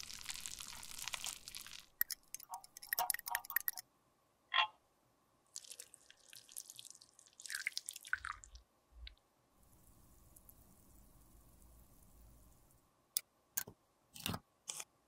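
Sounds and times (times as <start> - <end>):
liquid trickling and dripping: 0.2 - 3.8, 5.5 - 9.2
faint steady hum: 7.8 - 15.0.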